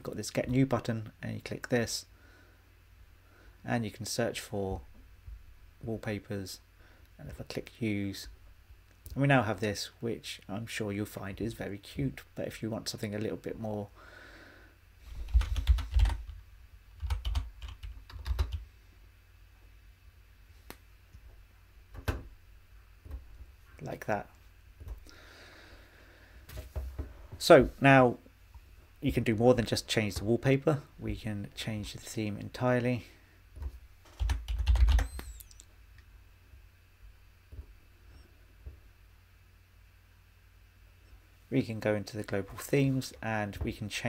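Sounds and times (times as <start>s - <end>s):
typing on keyboard: 15.3s - 16.4s, 17.0s - 18.6s, 34.1s - 35.6s.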